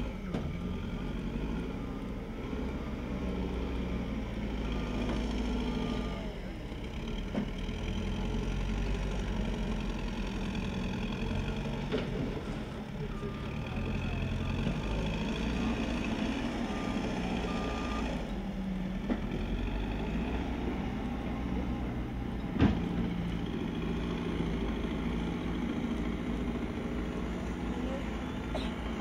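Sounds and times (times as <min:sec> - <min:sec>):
diesel engines running: 0:00.0 - 0:29.0
reversing alarm beeping: 0:13.0 - 0:18.3.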